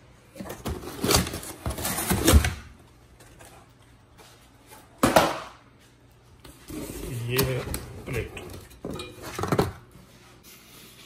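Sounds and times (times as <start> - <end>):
cardboard scraping and rustling: 0.4 - 2.6.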